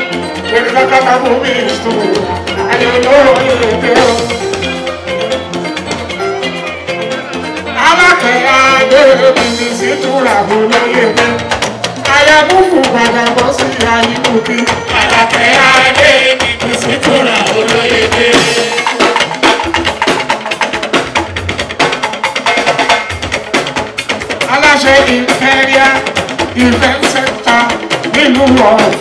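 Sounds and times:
hand drums and percussion: 0:00.0 - 0:29.0
man singing into microphone: 0:00.4 - 0:04.9, 0:07.7 - 0:18.9, 0:24.5 - 0:29.0.

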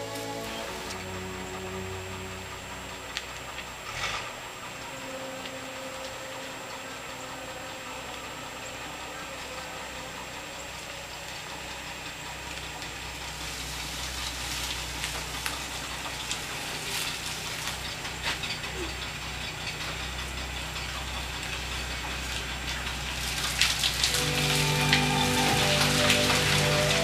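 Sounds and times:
car engine idling: 0:00.0 - 0:27.0
tyres crackling over leaves: 0:00.0 - 0:27.0.

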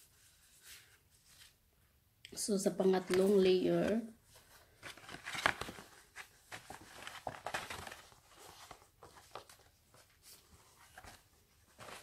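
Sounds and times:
paper card rustling: 0:02.8 - 0:12.0.

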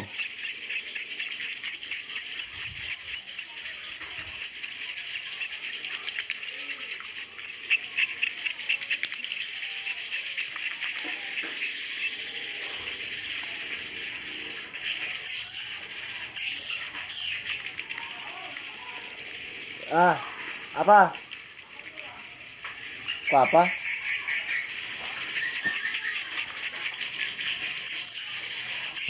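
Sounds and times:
swiftlets high chirps: 0:00.0 - 0:17.5, 0:20.7 - 0:29.0
dense twittering chatter: 0:00.0 - 0:29.0.

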